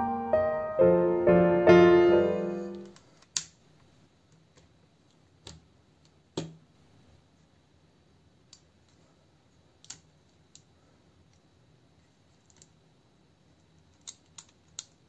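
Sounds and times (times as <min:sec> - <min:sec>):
piano music: 0:00.0 - 0:02.9.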